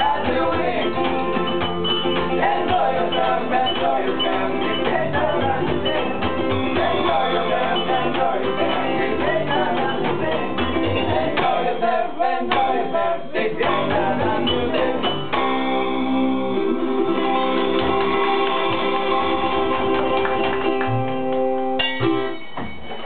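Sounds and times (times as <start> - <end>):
man singing: 0.0 - 1.1
small band playing upbeat song: 0.0 - 23.0.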